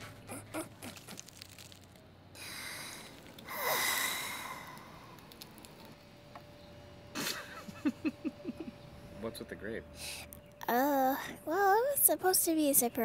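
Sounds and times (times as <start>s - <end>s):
person sighing: 2.4s - 4.8s
person breathing in: 2.4s - 5.0s.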